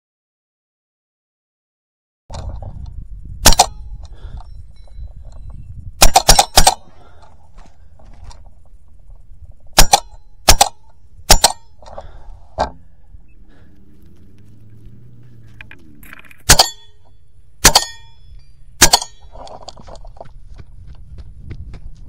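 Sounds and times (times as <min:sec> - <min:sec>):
air rifle shots: 0:03.4 - 0:03.9, 0:06.0 - 0:07.2, 0:09.7 - 0:12.8, 0:16.4 - 0:18.2, 0:18.8 - 0:19.6.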